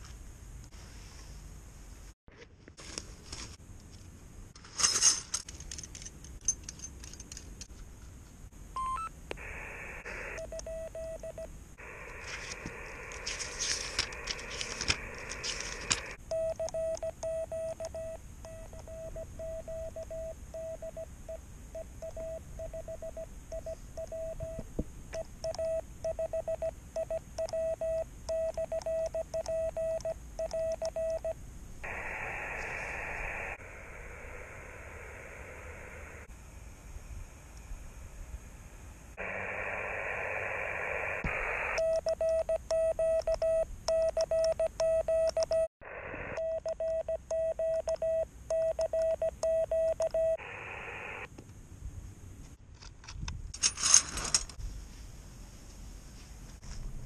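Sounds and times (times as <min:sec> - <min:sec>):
morse code beeps: 0:08.8 - 0:09.1, 0:10.4 - 0:11.5, 0:16.3 - 0:24.6, 0:25.4 - 0:31.4, 0:41.8 - 0:45.7, 0:46.4 - 0:50.4
radio speaker hiss: 0:09.3 - 0:11.1, 0:11.8 - 0:16.2, 0:31.8 - 0:38.3, 0:39.1 - 0:41.8, 0:45.8 - 0:46.4, 0:50.3 - 0:51.3.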